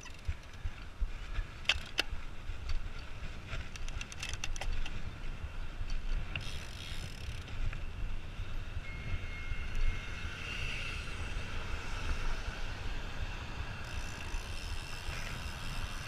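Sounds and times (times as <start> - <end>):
light rattling ticks: 0.0 - 5.1
low wind rumble: 0.0 - 16.0.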